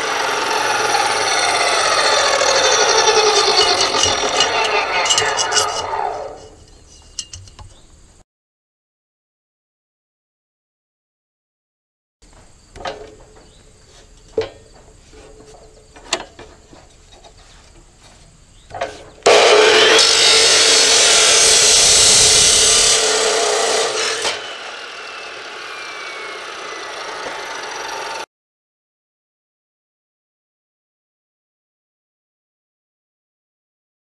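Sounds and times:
saw wheel winding down whine: 0.0 - 6.8, 19.2 - 28.3
abrasive saw grinding steel: 0.0 - 7.9, 12.5 - 28.3
steel tubing clunking: 2.7 - 7.9, 12.2 - 19.6.

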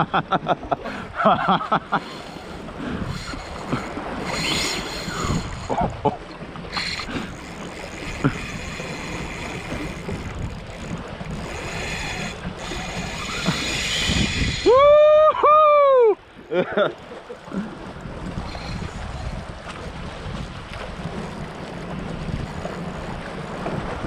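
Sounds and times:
sea waves washing against rocks: 0.0 - 15.1
wind buffeting microphone: 0.8 - 15.5, 17.4 - 24.0.

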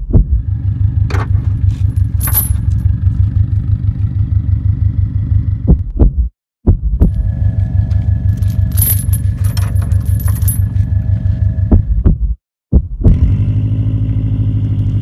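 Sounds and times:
vehicle engine idling: 0.3 - 5.8, 7.0 - 12.1
metal chain links clinking: 1.2 - 2.9, 8.2 - 10.9.

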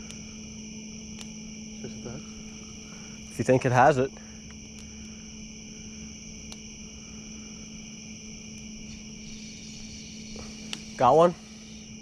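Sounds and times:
faint ticks: 0.0 - 0.2, 4.4 - 5.2, 9.8 - 10.9
crickets and insects trilling: 0.0 - 12.0
low steady hum: 0.0 - 12.0.

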